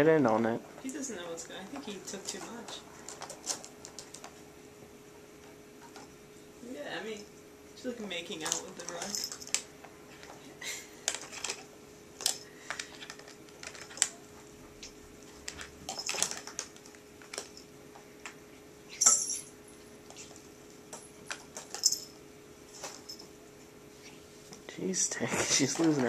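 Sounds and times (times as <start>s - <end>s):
plastic ball toy clicking and rattling: 12.2s - 14.1s.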